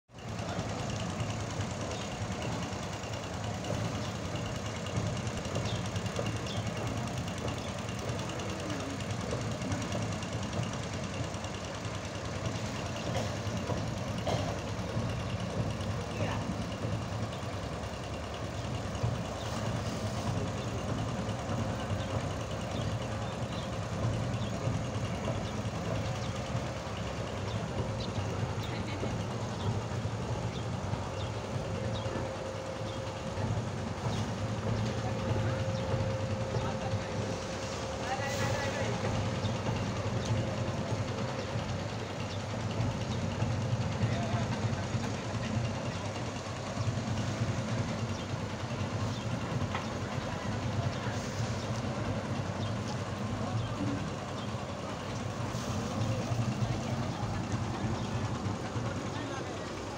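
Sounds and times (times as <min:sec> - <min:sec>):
boat engine running: 0:00.1 - 0:59.9.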